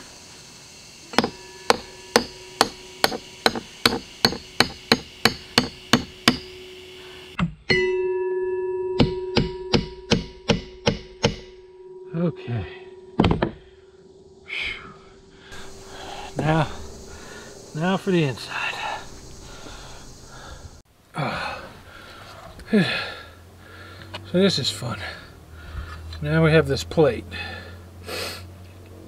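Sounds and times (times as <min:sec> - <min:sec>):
hammer striking metal bolts: 0:01.1 - 0:06.6, 0:09.0 - 0:11.6.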